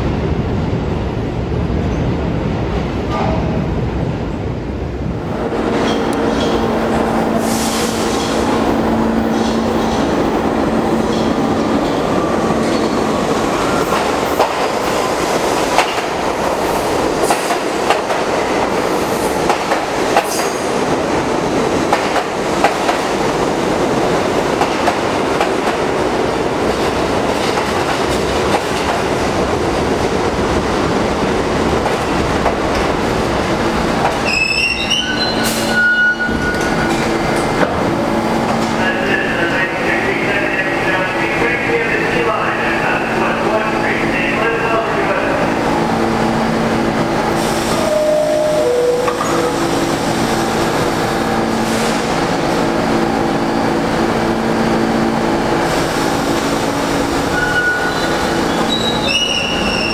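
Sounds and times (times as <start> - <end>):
subway wheels on rail: 0.0 - 59.9
high-pitched wheel squeal: 34.2 - 37.0, 57.3 - 59.9.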